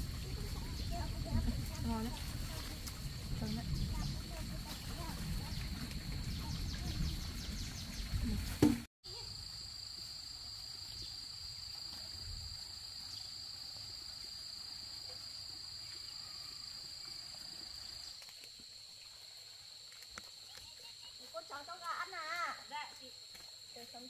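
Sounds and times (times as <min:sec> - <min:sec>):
insects trilling: 0:00.0 - 0:08.4, 0:09.1 - 0:24.0.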